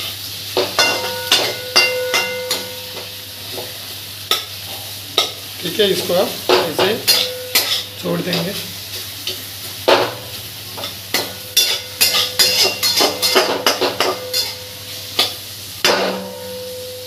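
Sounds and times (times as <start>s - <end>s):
onions sizzling in oil: 0.0s - 17.0s
metal spatula scraping pan: 11.2s - 16.9s.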